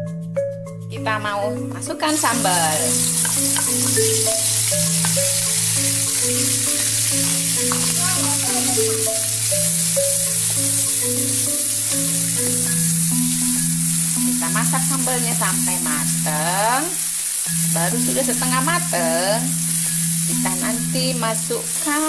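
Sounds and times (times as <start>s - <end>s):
background music of low notes: 0.0s - 22.0s
paste sizzling in hot oil: 2.0s - 22.0s
wooden spatula stirring: 2.1s - 15.9s.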